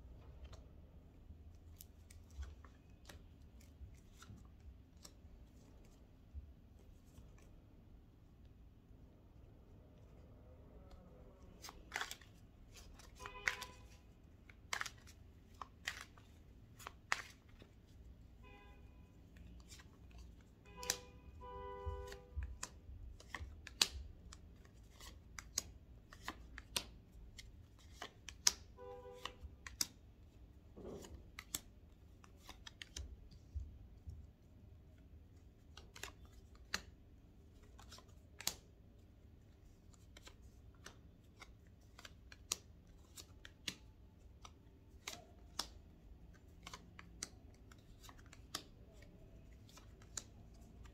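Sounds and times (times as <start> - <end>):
cards snapping and tapping: 11.5 - 13.9, 14.5 - 16.2, 19.4 - 21.1, 22.0 - 30.0, 37.7 - 38.7, 40.1 - 50.9.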